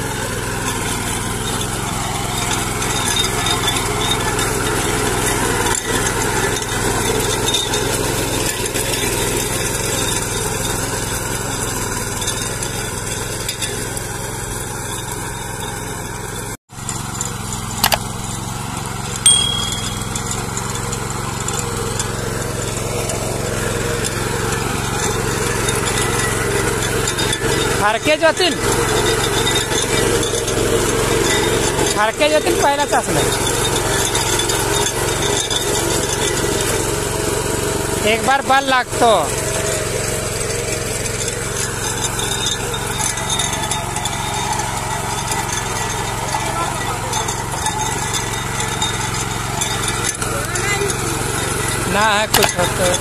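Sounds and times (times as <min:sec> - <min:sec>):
weeder engine running: 0:00.0 - 0:53.0
blades churning soil: 0:20.5 - 0:53.0.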